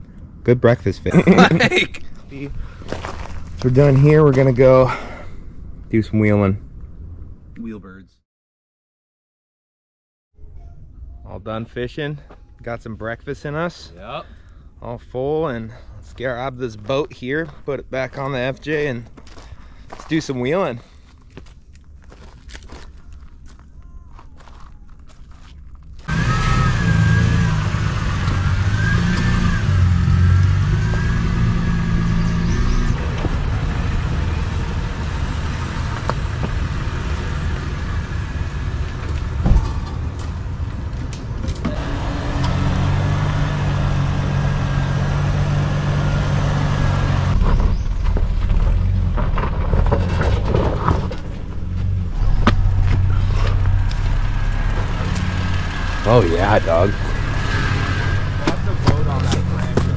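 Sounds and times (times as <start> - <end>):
suv engine driving slowly: 15.5 - 59.9.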